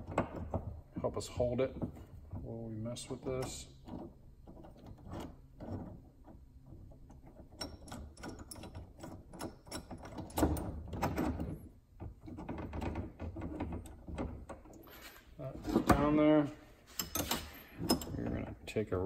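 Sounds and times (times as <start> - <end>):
metal clicks and knocks: 0.0 - 1.0, 3.1 - 14.8, 16.9 - 18.7.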